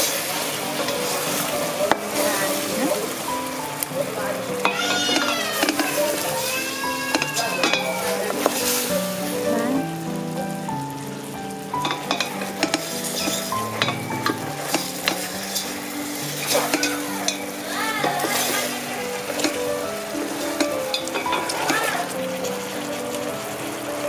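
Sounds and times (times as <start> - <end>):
chicken sizzling in a pot: 0.0 - 24.0
wooden spatula scraping a pot: 12.0 - 19.6.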